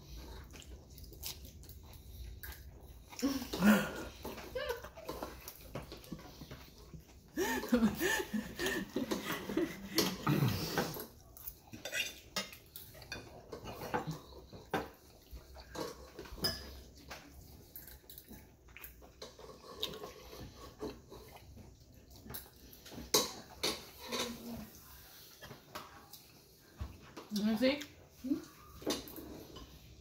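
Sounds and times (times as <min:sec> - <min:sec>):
cutlery clinking on ceramic plate: 0:15.6 - 0:18.3.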